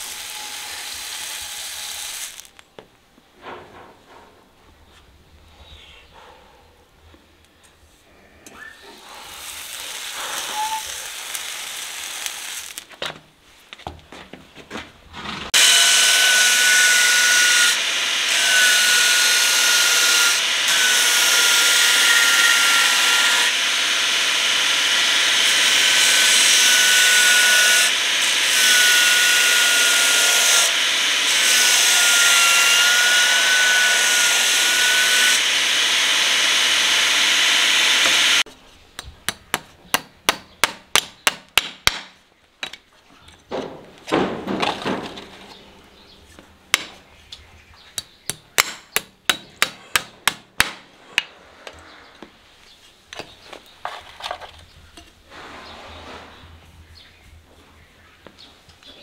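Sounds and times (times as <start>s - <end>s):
steel grinding on sanding belt: 9.2s - 12.8s, 15.5s - 38.5s
belt grinder whining: 15.6s - 38.4s.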